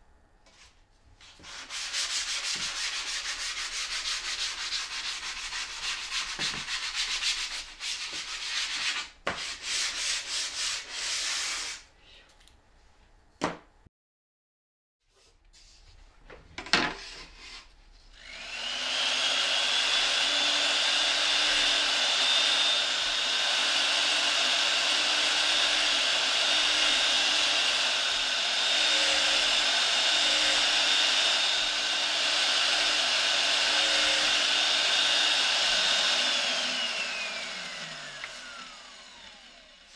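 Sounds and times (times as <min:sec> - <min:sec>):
sandpaper rubbing wood: 0:00.5 - 0:11.8, 0:24.9 - 0:35.2
drill press whining: 0:18.2 - 0:39.8.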